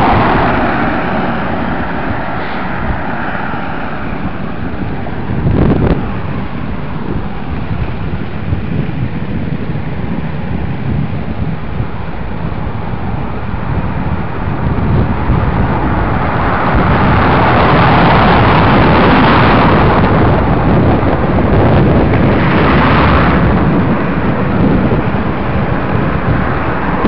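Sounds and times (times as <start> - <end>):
cars passing: 0.0 - 27.0
skate wheels rolling on tarmac: 0.0 - 27.0
wind buffeting microphone: 0.0 - 27.0.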